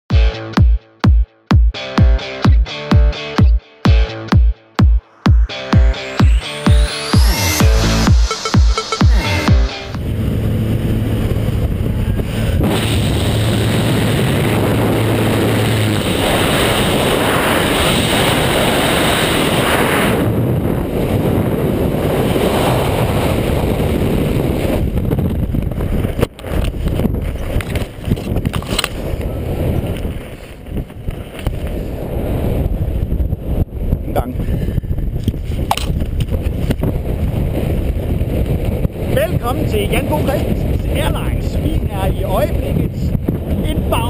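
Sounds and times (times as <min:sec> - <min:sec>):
plane engine hum: 0:07.2 - 0:17.8
wind rushing on microphone: 0:09.3 - 0:44.0.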